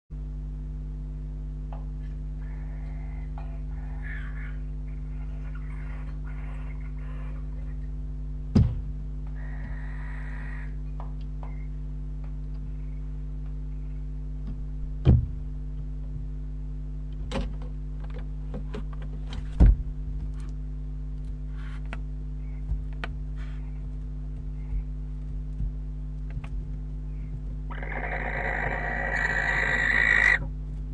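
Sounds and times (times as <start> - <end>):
low electrical hum: 0.1 - 30.9
knocks and thumps on wood: 8.5 - 8.9, 14.5 - 15.4
owl hiss: 9.4 - 10.8, 27.7 - 30.4.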